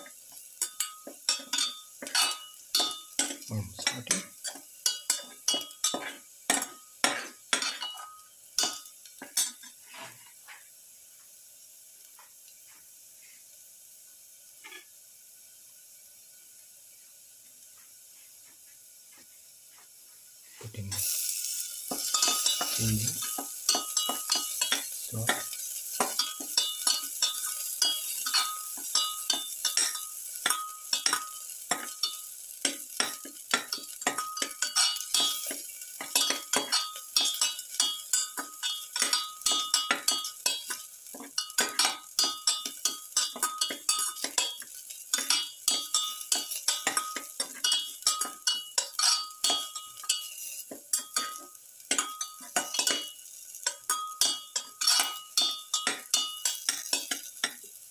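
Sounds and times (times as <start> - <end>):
garlic and onion sizzling in oil: 0.0 - 57.9
spatula scraping pan: 0.6 - 10.5, 21.8 - 57.7.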